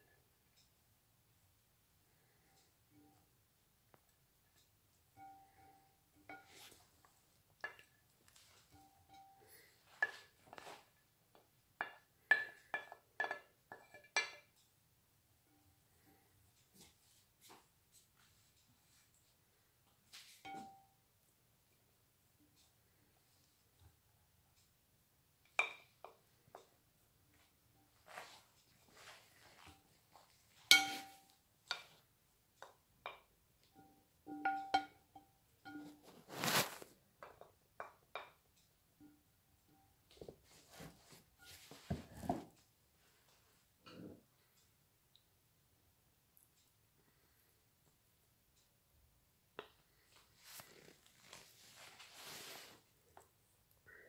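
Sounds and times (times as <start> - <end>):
wooden spoon clinking on dishes: 5.2 - 6.8, 7.6 - 8.0, 8.7 - 10.8, 11.8 - 14.6, 20.4 - 20.9, 25.4 - 26.2, 30.6 - 32.0, 33.0 - 36.0.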